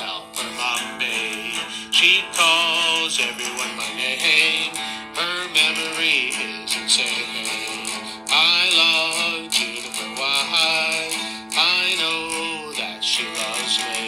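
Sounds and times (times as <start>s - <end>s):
country song with acoustic guitar: 0.0s - 14.0s.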